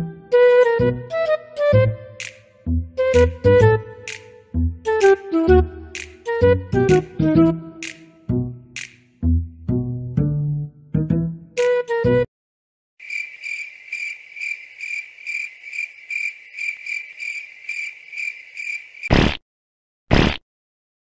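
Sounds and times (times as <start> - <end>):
plucked string notes: 9.2 - 12.2
crickets chirping: 13.0 - 19.1.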